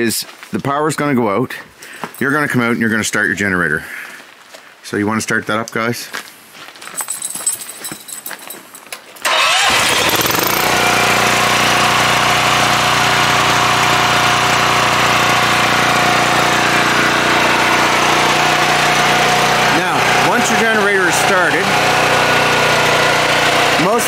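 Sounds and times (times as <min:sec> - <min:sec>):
generator engine running: 0:09.2 - 0:24.0.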